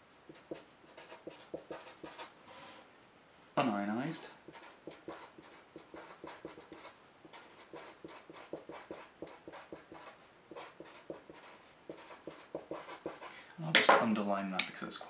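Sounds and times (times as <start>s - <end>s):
marker writing on paper: 0.3s - 2.4s, 4.5s - 13.3s.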